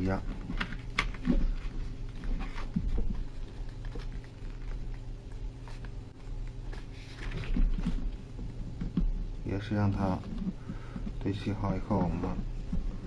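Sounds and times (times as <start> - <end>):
paper folding and rustling: 0.0 - 9.1
steady low hum: 0.0 - 13.0.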